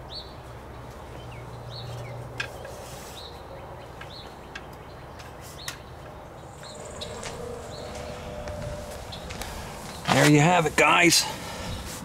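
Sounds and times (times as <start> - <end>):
steady outdoor hum: 0.0 - 12.0
bird chirping: 1.0 - 10.3.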